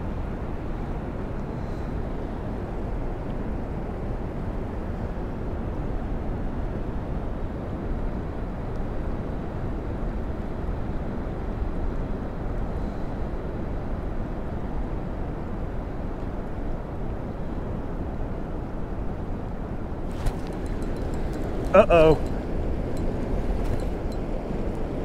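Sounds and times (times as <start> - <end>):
river water rushing: 20.1 - 22.4.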